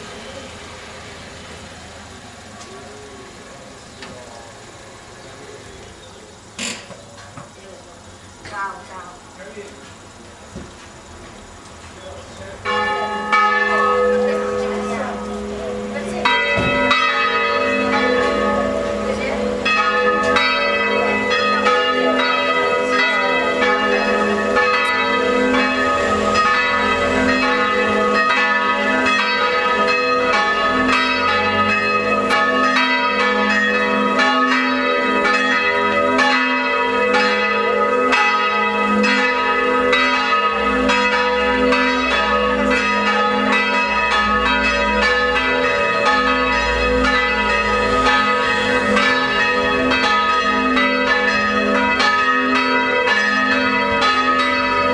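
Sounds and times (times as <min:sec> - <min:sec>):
church bells pealing: 0:12.0 - 0:54.9.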